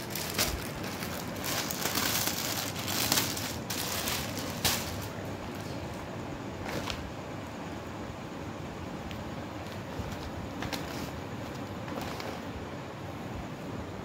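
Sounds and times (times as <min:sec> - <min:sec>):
plastic packaging crinkling: 0:00.0 - 0:05.6.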